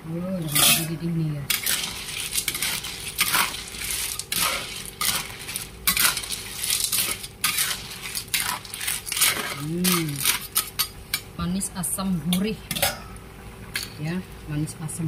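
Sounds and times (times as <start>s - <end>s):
spatula and shells clinking in wok: 1.5s - 11.3s.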